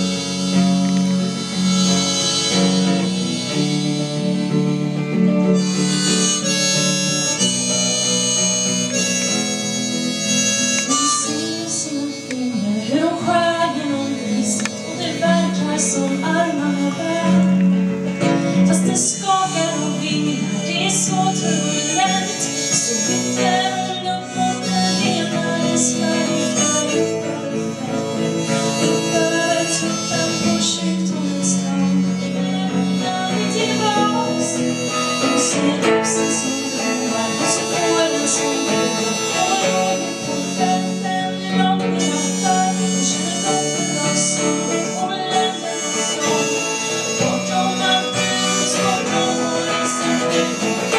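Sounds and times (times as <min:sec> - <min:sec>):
acoustic guitar accompaniment: 0:00.0 - 0:50.9
harmonica melody: 0:00.0 - 0:50.9.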